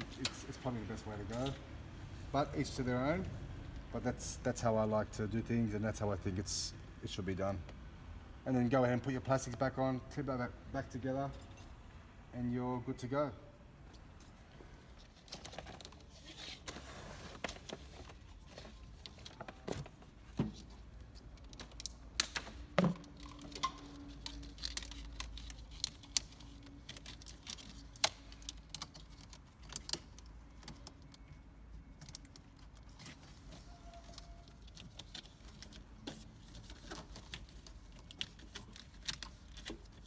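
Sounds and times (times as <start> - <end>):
clicks of plastic connectors: 21.2 - 33.2.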